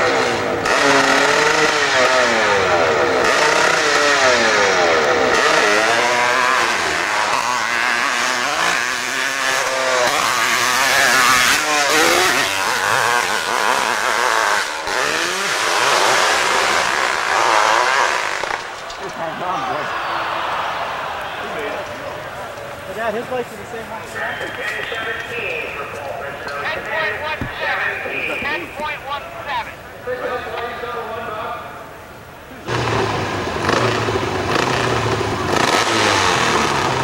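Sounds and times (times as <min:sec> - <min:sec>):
motorcycle engine at full throttle: 0:00.0 - 0:18.8, 0:32.7 - 0:37.0.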